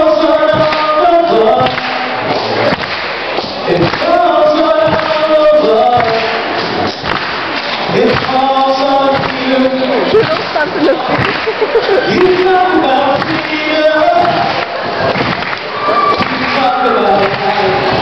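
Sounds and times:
man singing a cappella: 0.0 - 2.1, 3.6 - 6.5, 7.9 - 10.2, 12.0 - 14.5.

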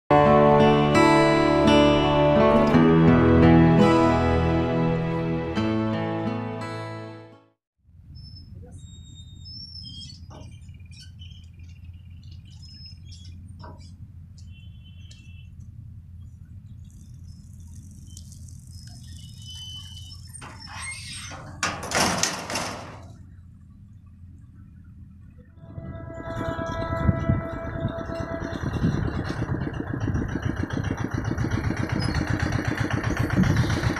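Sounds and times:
birds chirping: 8.1 - 21.3
steady low hum: 10.6 - 20.5, 23.0 - 33.9
boom barriers lowering: 20.3 - 23.2.

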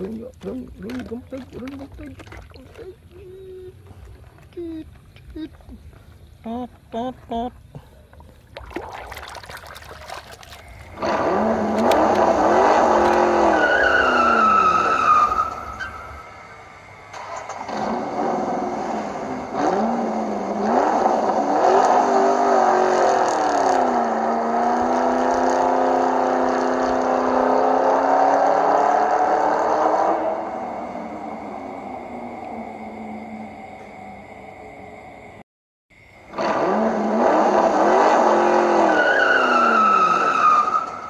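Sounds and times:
tire squeal: 10.8 - 16.5, 36.3 - 41.0
car engine revving: 10.9 - 15.7, 17.6 - 33.1, 36.3 - 41.0.

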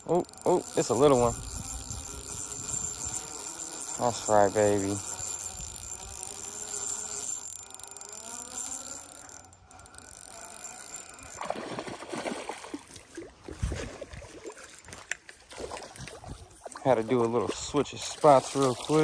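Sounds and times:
fishing reel whirring: 0.0 - 12.9, 14.2 - 15.6.

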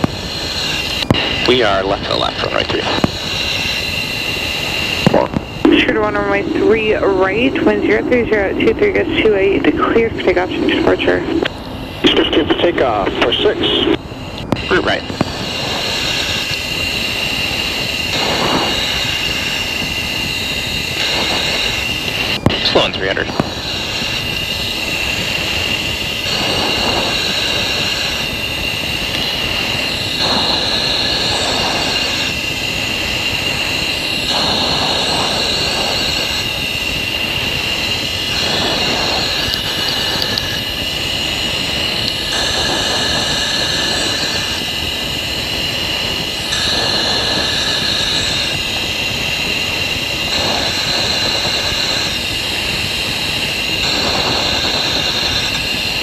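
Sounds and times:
jet engine and air rush whine: 0.0 - 56.0
breathing through oxygen mask: 23.3 - 56.0.

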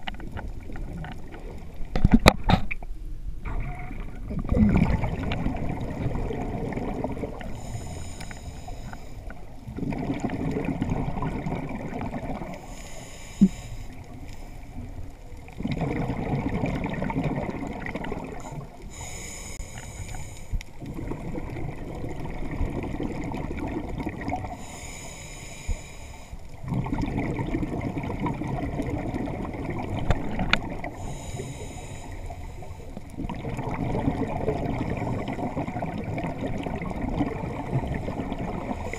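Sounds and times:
exhaled bubbles rumbling: 0.0 - 2.5, 3.3 - 7.9, 9.2 - 12.7, 13.4 - 19.0, 20.6 - 24.8, 26.5 - 31.3, 32.4 - 38.9
diver inhaling through regulator: 7.3 - 9.3, 12.6 - 14.7, 18.4 - 20.6, 24.4 - 26.5, 30.8 - 33.0.

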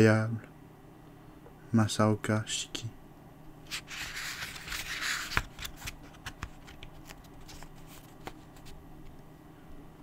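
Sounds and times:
book page turning: 3.7 - 8.8.

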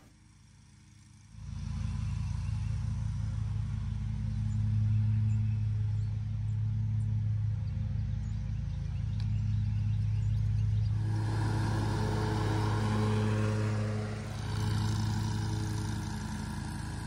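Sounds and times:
lawn mower engine running: 0.0 - 0.3, 10.8 - 17.0.

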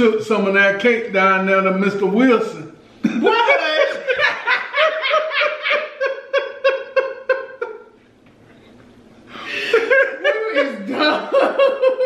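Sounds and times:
person laughing hard: 3.0 - 8.0, 9.4 - 12.0.

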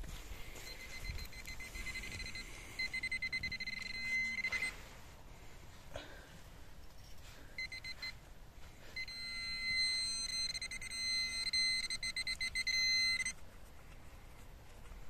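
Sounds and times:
metal detector beeping: 0.5 - 4.9, 6.9 - 13.4.

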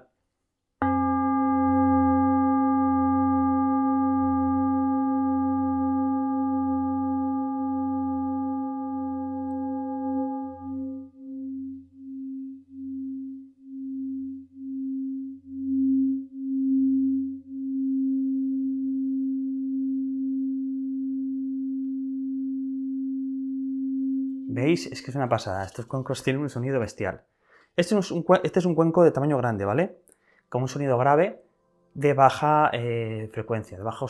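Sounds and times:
singing bowl deep tone: 0.8 - 24.5.

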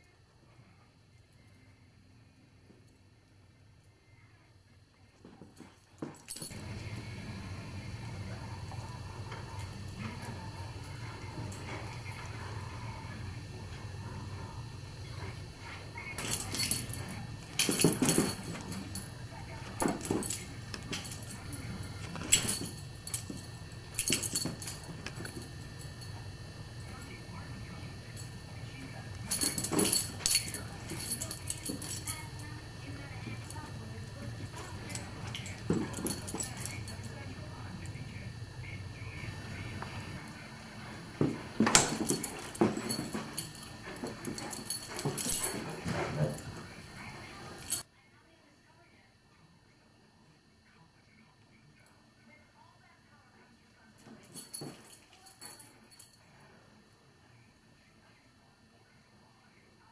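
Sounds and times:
dog claws clicking and tags jangling: 16.2 - 19.1, 19.8 - 25.5, 29.3 - 32.5, 34.4 - 37.0, 41.6 - 46.5
dog scrambling knocks and thumps: 41.2 - 46.6.

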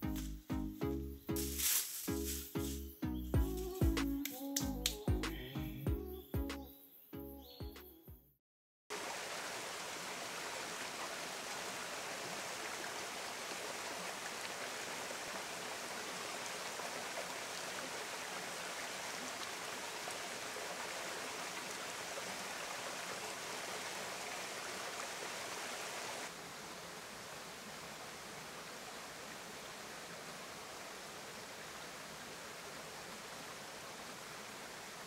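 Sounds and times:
music: 0.0 - 8.4
stream running over rocks: 8.9 - 35.0.

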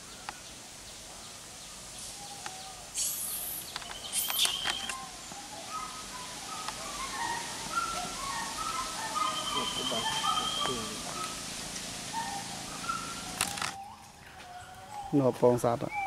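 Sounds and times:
birds chirping: 0.0 - 16.0
high hissing rush: 1.4 - 13.8
sharp clicks: 2.4 - 5.0, 13.3 - 13.8.

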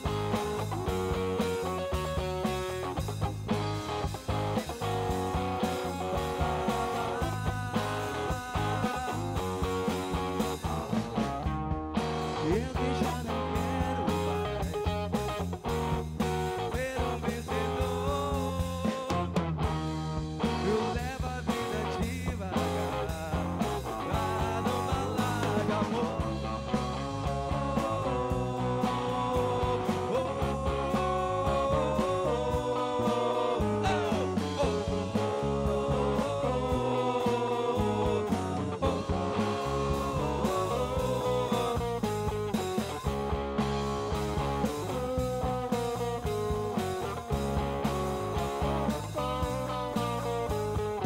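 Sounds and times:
drum kit: 0.0 - 51.0
electric bass: 0.0 - 51.0
electric guitar: 0.0 - 51.0.

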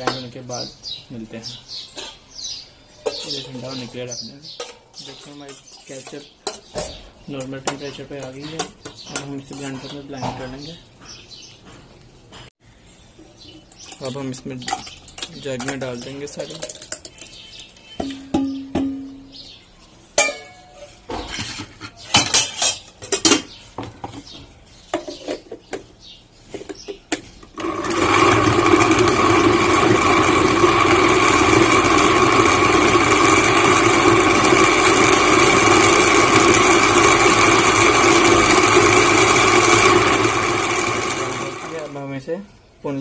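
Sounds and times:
pan knocking and scraping: 3.0 - 3.7, 18.0 - 19.3
mixer grinder motor running: 27.5 - 42.0.

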